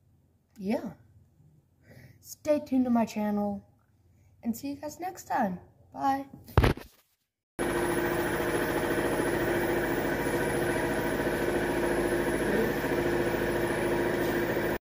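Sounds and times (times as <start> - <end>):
pulsing mechanical hum: 7.6 - 14.8.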